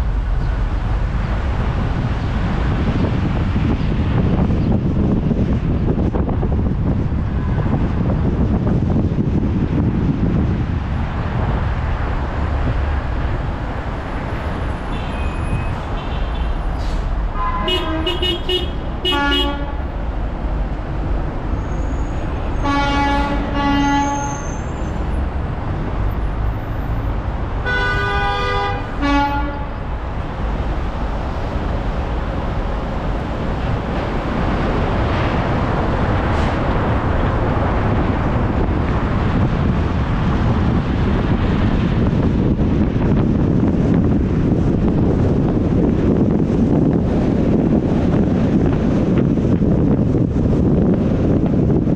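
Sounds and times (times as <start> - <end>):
steady low rumble: 0.0 - 15.0, 28.8 - 51.9
horn blasts: 17.4 - 19.9, 22.6 - 24.7, 27.6 - 29.8.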